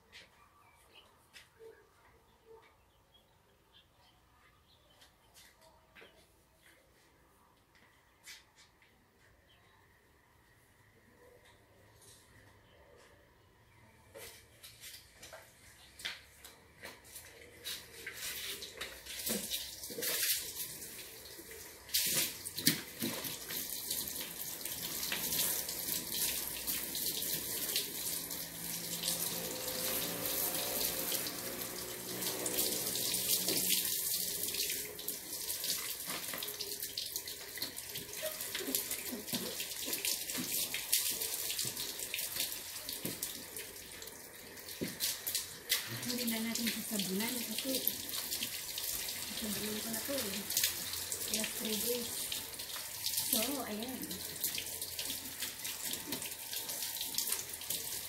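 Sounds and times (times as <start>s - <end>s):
hose water spraying on car: 17.6s - 58.0s.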